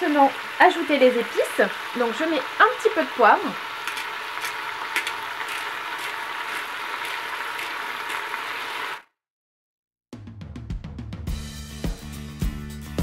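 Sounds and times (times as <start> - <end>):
chicken sizzling in oil: 0.0 - 9.1.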